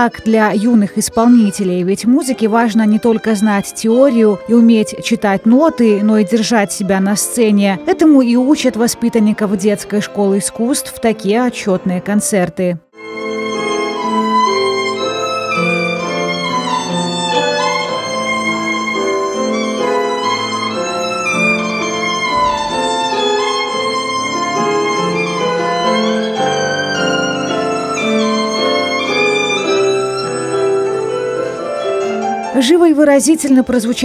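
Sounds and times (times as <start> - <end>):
piano accompaniment: 0.0 - 34.0
violin melody: 0.0 - 34.0.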